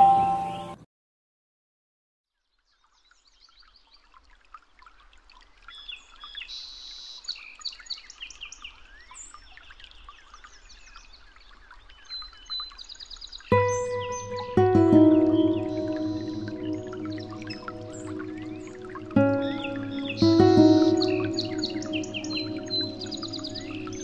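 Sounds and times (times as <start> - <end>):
background music: 13.5 - 24.0
birds chirping and singing: 13.5 - 24.0.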